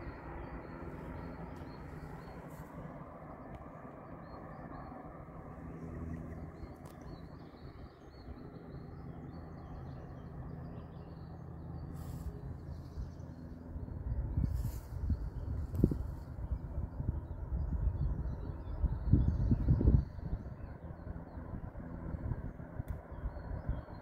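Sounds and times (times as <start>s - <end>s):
low outdoor rumble: 0.0s - 24.0s
small birds chirping: 0.0s - 24.0s.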